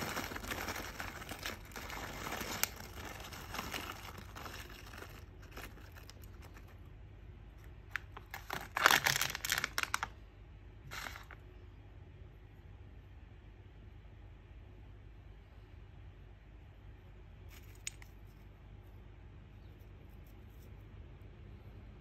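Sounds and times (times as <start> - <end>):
plastic bag crinkling: 0.0 - 6.9, 7.9 - 10.2, 10.8 - 11.4.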